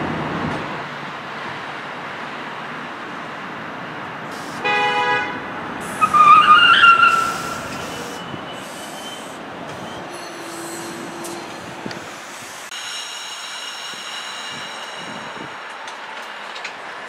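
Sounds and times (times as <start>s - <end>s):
rail traffic noise: 0.0s - 17.0s
train horn blasts: 4.6s - 7.9s.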